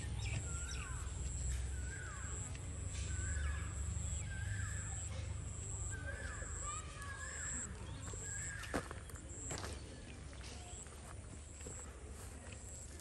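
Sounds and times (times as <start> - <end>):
bird calling: 0.0 - 9.4.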